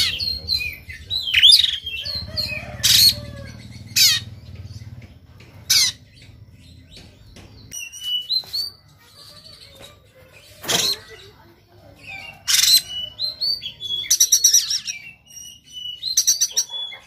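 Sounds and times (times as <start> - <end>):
bird singing harsh rasping notes: 0.0 - 17.0
bird whistling and chattering: 12.2 - 17.0.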